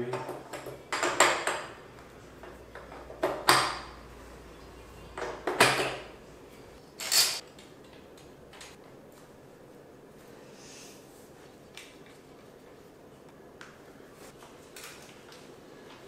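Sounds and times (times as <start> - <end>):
metal clinking and knocking: 7.0 - 7.4.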